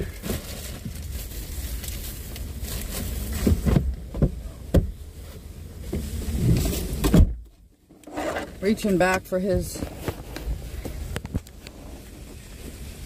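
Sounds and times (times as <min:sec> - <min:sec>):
items knocking inside vehicle: 0:03.3 - 0:05.0.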